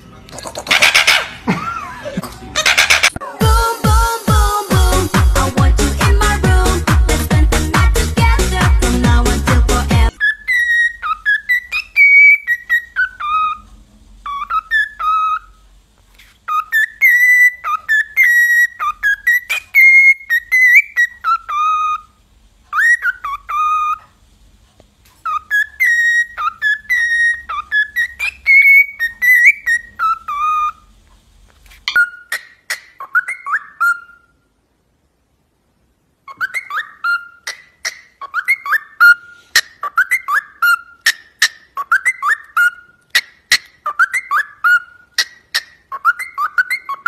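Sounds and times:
cockatiel whistling a tune: 10.1s - 13.6s, 14.2s - 15.6s, 16.5s - 22.1s, 22.7s - 24.1s, 25.2s - 30.8s, 31.9s - 34.3s, 36.3s - 47.0s.

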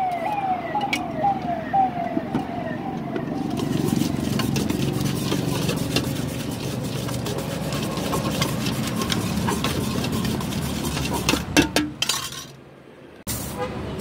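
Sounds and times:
low traffic hum: 0.0s - 14.0s
spoon scraping steel bowl: 3.4s - 12.5s.

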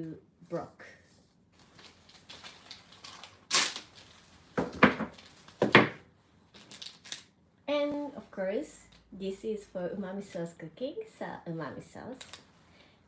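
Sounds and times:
packaging crinkling: 1.6s - 5.7s, 6.5s - 7.3s.

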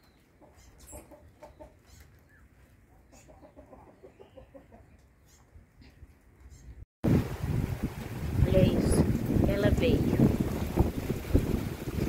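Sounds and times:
chickens clucking: 0.0s - 6.0s.

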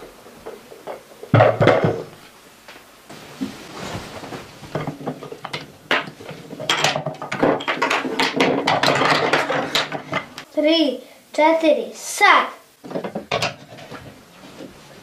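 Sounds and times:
wooden blocks clattering on table: 4.7s - 10.4s, 12.8s - 14.1s.

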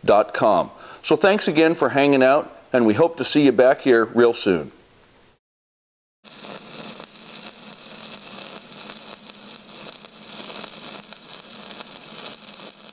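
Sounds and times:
crackling hiss: 6.2s - 12.9s.

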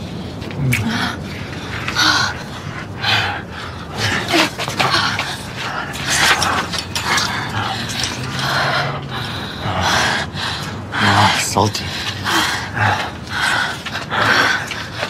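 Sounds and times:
people breathing hard and gasping: 0.0s - 15.0s
short low moans: 0.4s - 2.4s
kissing: 0.6s - 1.0s.

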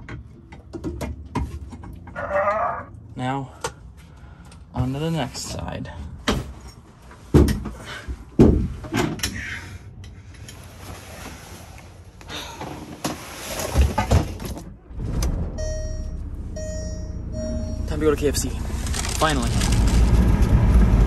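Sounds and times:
beeping chime: 15.5s - 18.2s.

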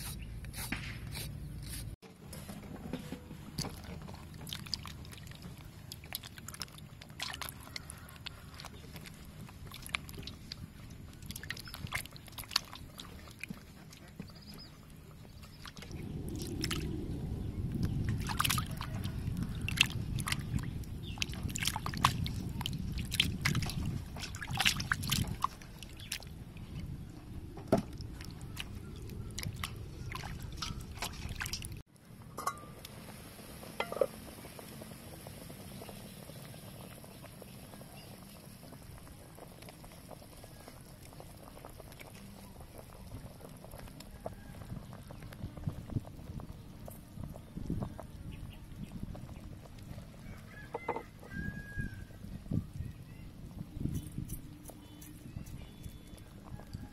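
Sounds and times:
pot of water boiling: 2.0s - 56.9s
water dripping and trickling: 3.5s - 51.6s
hands splashing water in basin: 18.2s - 26.3s, 27.9s - 31.8s.

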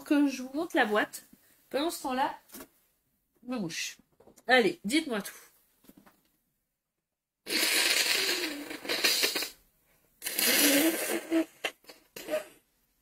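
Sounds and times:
woman blowing her nose: 7.5s - 9.6s, 10.2s - 12.7s.

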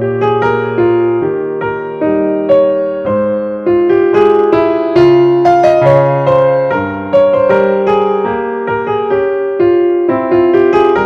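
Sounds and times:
slow piano music: 0.0s - 11.0s.

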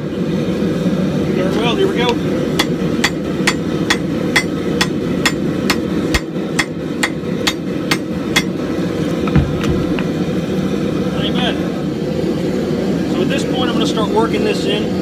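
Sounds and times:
hammer striking steel on anvil: 2.6s - 8.6s.

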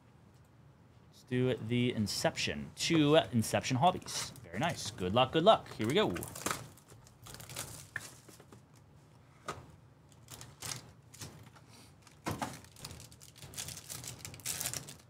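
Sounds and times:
plastic wrap crinkling and ripping: 5.8s - 8.4s, 10.1s - 11.4s, 12.0s - 15.0s.

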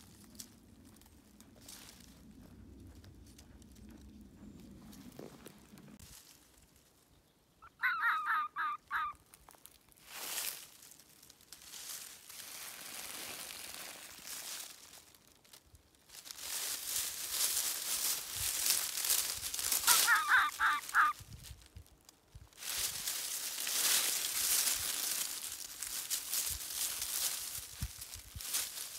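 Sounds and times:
dry leaves rustling: 0.0s - 3.7s, 5.3s - 7.1s, 8.6s - 28.9s
fox kit calling: 7.6s - 9.2s, 19.7s - 21.2s.

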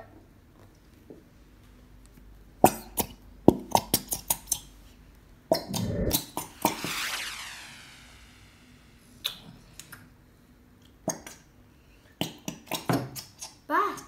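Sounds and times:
hiss: 5.7s - 9.1s.

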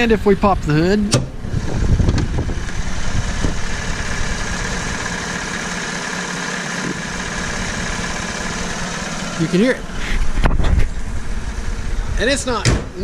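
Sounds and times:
car engine idling: 0.0s - 13.0s
low thump: 12.6s - 13.0s.

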